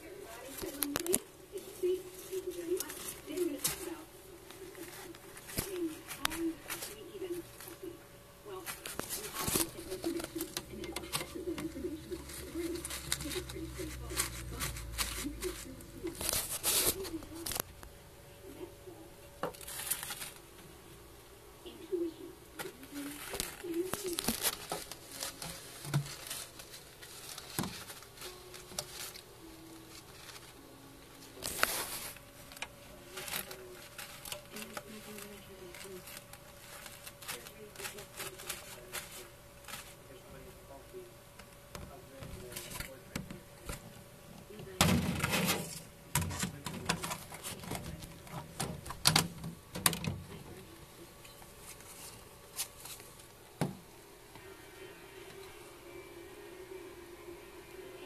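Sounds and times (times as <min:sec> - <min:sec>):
paper towel rustle: 0:00.0 - 0:07.9, 0:08.5 - 0:17.6, 0:22.6 - 0:40.8, 0:44.7 - 0:50.7, 0:51.5 - 0:53.3
lizard ticks and scratches: 0:00.2 - 0:07.9, 0:08.6 - 0:17.9, 0:19.4 - 0:20.6, 0:22.6 - 0:40.5, 0:51.3 - 0:53.4.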